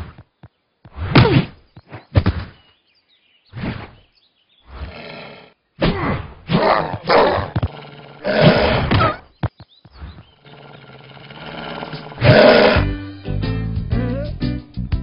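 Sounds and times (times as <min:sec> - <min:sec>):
cartoon bear grunting and crying: 0:04.8 - 0:09.2, 0:10.4 - 0:13.0.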